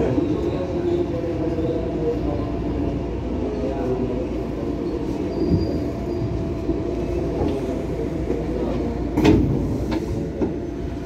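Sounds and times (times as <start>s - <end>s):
train car equipment humming: 0.0s - 11.0s.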